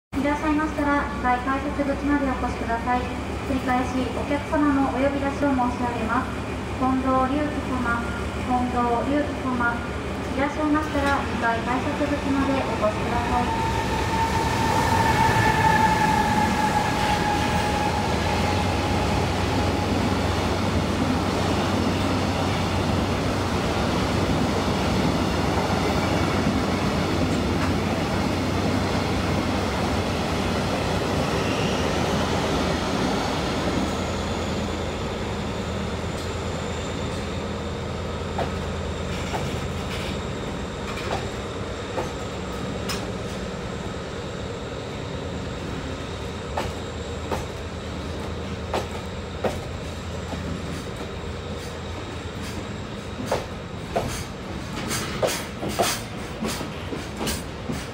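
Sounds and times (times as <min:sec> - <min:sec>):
freight train wheels rumbling: 0:00.2 - 0:57.9
high wheel squeal: 0:13.4 - 0:20.0.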